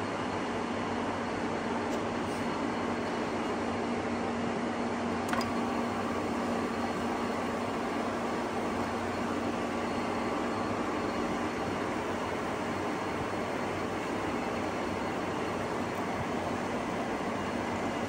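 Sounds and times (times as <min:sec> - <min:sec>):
faint high whine: 0:05.2 - 0:18.0
click: 0:05.3 - 0:05.5.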